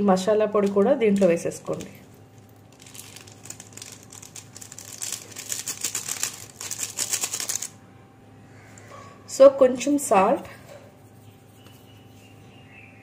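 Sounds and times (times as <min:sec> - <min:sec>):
foil sachet crinkling: 0:00.6 - 0:07.8.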